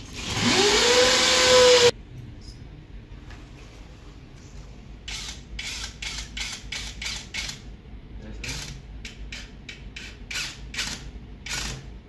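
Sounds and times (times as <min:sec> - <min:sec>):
cordless drill rasping bursts: 0:00.3 - 0:01.9.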